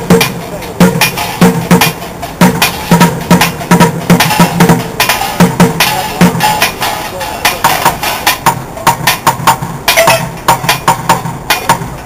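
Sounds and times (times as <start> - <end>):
drumming on plastic buckets: 0.0 - 12.0.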